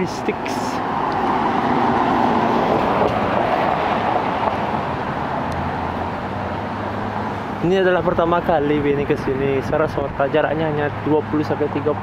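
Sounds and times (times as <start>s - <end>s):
low hum of traffic: 0.0s - 12.0s
car driving past: 0.8s - 7.6s.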